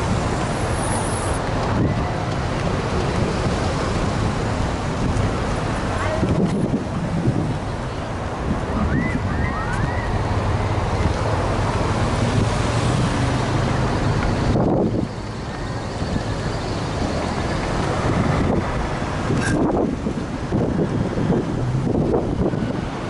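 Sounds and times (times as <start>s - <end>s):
cars passing close by: 0.0s - 23.0s
low engine hum: 0.0s - 23.0s
wind buffeting microphone: 0.0s - 23.0s
vehicle passing: 8.4s - 23.0s.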